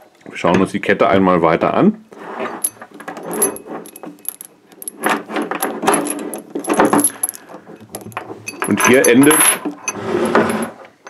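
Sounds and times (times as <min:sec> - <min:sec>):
chain links clinking: 0:02.6 - 0:10.7.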